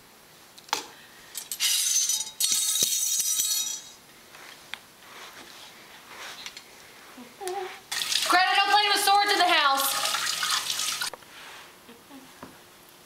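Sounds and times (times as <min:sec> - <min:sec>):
high-pitched clinking and crashing: 0:01.3 - 0:04.0.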